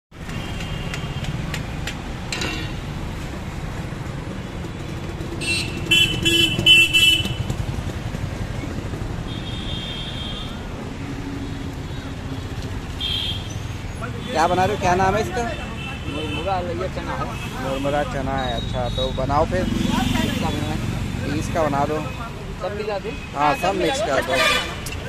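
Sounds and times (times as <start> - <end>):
road traffic rumble: 0.1 - 25.0
vehicle horn honking: 5.4 - 7.6, 23.4 - 25.0.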